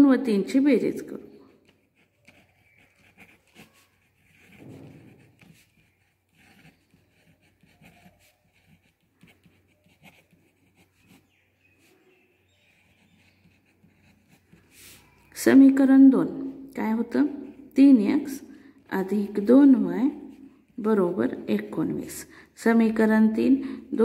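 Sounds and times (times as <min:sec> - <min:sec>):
pen scratching on paper: 0:01.6 - 0:15.4.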